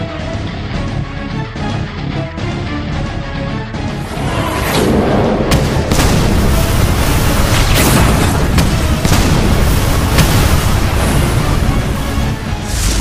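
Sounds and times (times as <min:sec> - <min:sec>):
background music: 0:00.0 - 0:13.0
sharp impact hits: 0:04.4 - 0:13.0.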